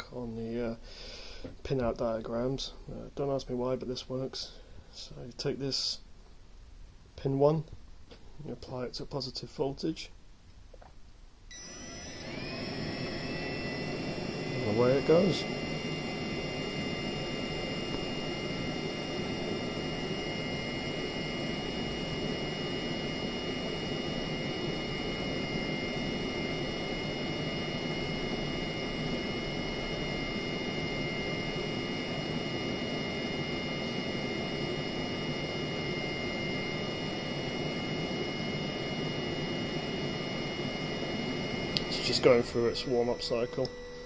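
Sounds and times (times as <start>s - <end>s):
heater fan rushing and whining: 11.5s - 44.0s.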